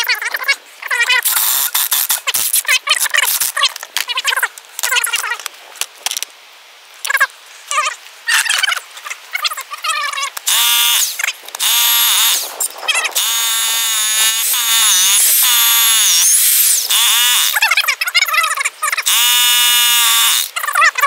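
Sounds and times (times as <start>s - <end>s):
rotary hammer drilling into concrete: 1.2s - 2.6s, 10.5s - 12.4s, 13.2s - 17.6s, 19.0s - 20.6s.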